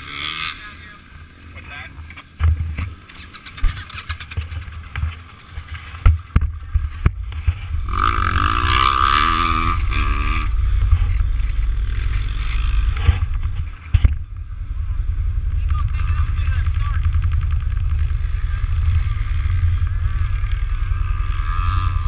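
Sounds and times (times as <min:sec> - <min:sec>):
engine revving: 0:00.0 - 0:01.0, 0:06.6 - 0:22.0
steady low rumble: 0:03.6 - 0:22.0.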